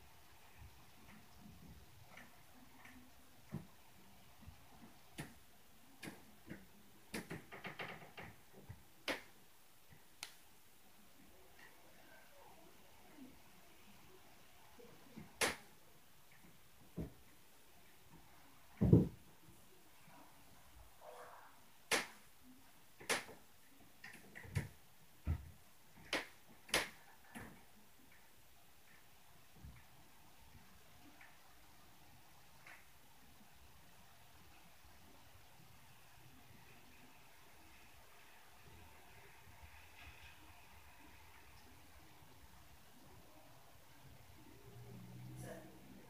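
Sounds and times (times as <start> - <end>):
sharp knocks and clicks: 6.0 - 9.3.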